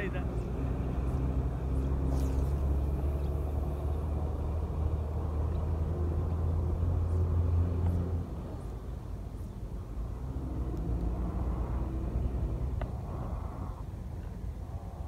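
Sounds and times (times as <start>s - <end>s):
wind buffeting microphone: 8.1s - 15.0s.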